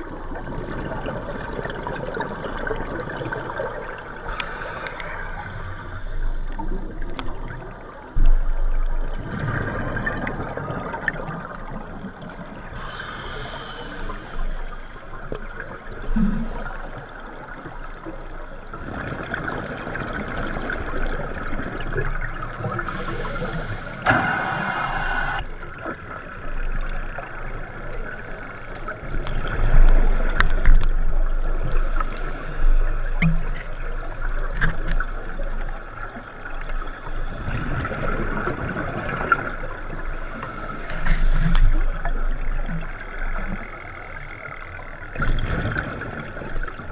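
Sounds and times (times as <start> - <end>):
low rumble of water: 0.0 - 46.9
diver breathing through regulator: 4.3 - 6.6, 12.7 - 15.1, 22.8 - 25.4, 31.8 - 33.5, 40.1 - 42.0.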